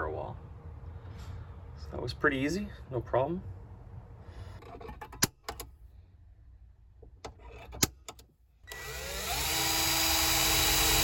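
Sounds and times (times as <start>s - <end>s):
cordless drill drilling: 8.7s - 11.0s.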